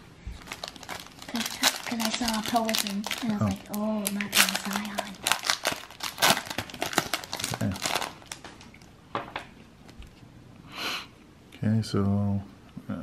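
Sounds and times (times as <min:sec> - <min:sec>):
foil wrapper crinkling: 0:00.4 - 0:08.8.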